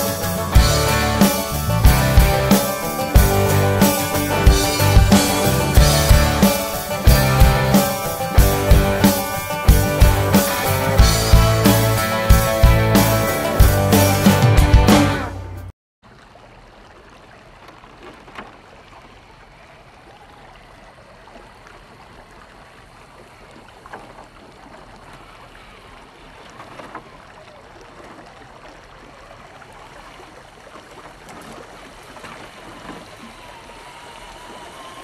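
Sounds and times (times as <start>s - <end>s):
water running in rocky stream: 0.0s - 14.0s, 16.0s - 35.0s
sharp splashes: 0.0s - 15.4s, 16.0s - 35.0s
faint electric motor whine: 32.6s - 35.0s.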